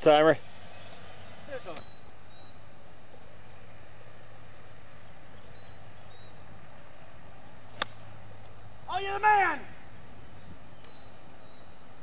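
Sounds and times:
faint bird chirps: 0.6s - 2.8s, 5.0s - 6.8s, 10.2s - 11.9s.

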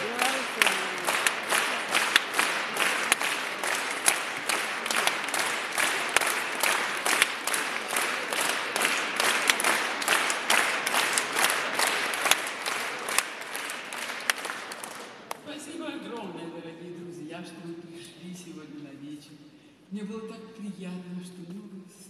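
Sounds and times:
crowd applauding: 0.0s - 15.4s.

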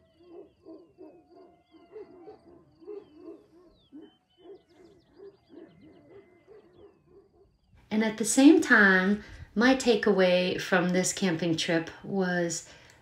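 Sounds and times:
down-sweeping whistles: 0.0s - 7.8s
low repeated hooting calls: 0.0s - 9.5s
birds chirping: 0.0s - 13.0s.

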